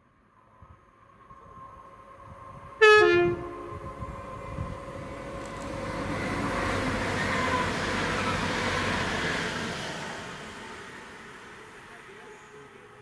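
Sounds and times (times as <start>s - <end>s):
train rumbling: 0.7s - 13.0s
two-tone train horn: 2.8s - 4.2s.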